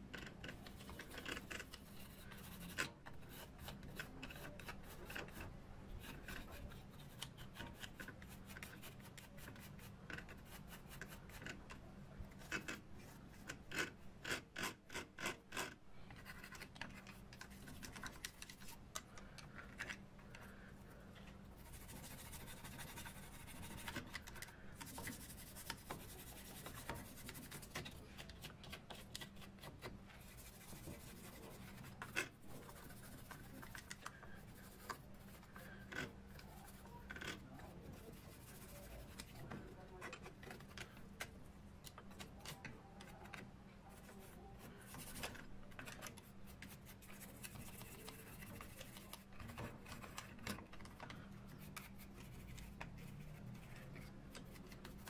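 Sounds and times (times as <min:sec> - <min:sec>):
brush scrubbing metal: 0:21.5 - 0:39.6.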